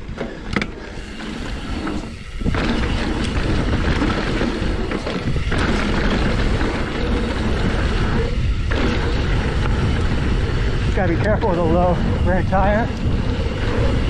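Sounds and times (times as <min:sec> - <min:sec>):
bike tyres on dirt trail: 0:00.0 - 0:14.0
wind buffeting microphone: 0:00.0 - 0:14.0.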